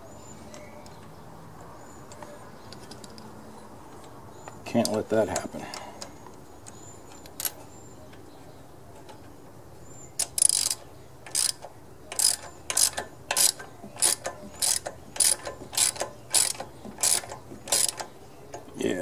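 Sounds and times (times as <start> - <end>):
socket ratchet clicking: 10.2 - 18.1.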